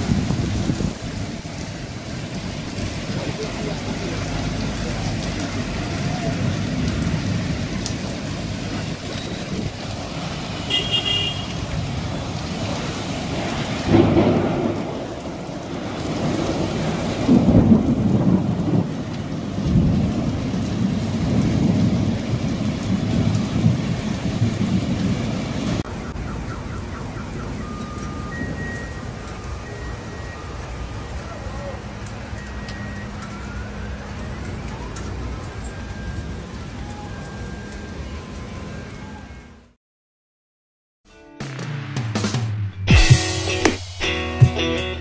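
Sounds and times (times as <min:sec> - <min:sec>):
thunder rumbles: 0:00.0 - 0:10.8, 0:11.6 - 0:25.9
heavy rain pouring: 0:00.0 - 0:25.9, 0:26.7 - 0:39.2.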